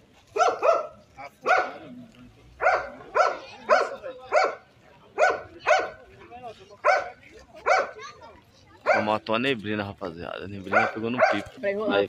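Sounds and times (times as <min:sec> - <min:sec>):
dog barking: 0:00.3 - 0:01.9, 0:02.6 - 0:06.0, 0:06.8 - 0:08.0, 0:08.8 - 0:09.1, 0:10.7 - 0:11.6.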